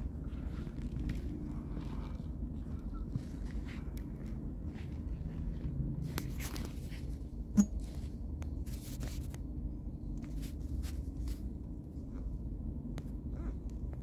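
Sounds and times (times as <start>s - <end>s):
faint scuffs and rustles: 0.0s - 9.5s, 10.2s - 11.7s.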